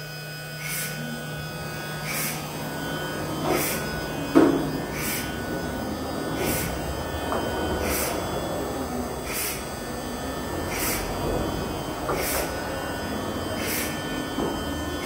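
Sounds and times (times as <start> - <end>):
machine hum: 0.0 - 15.0
machine clunk: 2.0 - 8.6, 10.7 - 12.8, 13.5 - 15.0.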